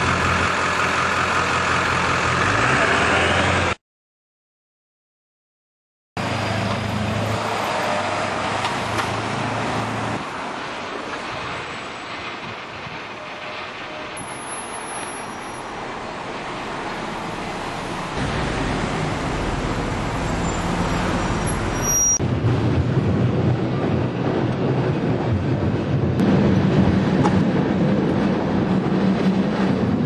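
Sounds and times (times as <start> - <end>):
street noise: 0.0 - 3.8, 6.2 - 30.0
tram wheels rumbling: 0.0 - 3.8, 6.2 - 30.0.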